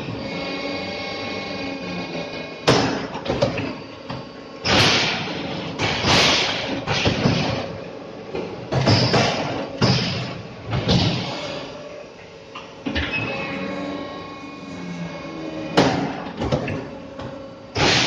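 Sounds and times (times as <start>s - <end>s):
brick press clanks and thuds: 8.7s - 11.4s.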